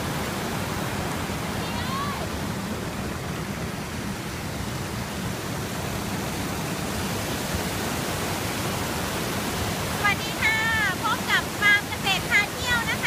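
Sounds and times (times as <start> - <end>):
waterfall rushing over rocks: 0.0 - 13.0.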